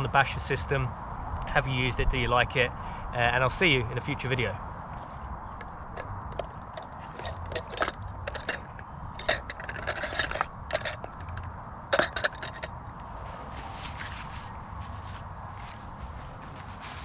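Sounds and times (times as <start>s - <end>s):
tent pegs clinking and scraping: 4.9s - 17.0s.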